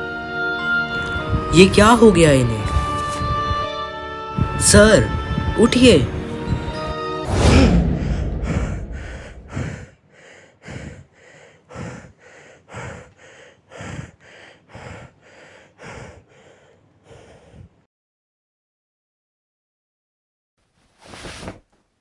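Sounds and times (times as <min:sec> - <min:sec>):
young man panting: 0:07.7 - 0:17.9.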